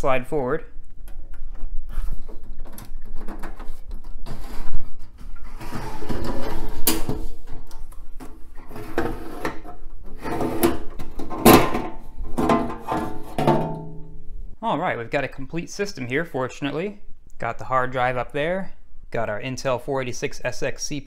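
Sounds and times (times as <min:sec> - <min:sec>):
sheet metal cover scraping and clunking: 0:01.9 - 0:14.2.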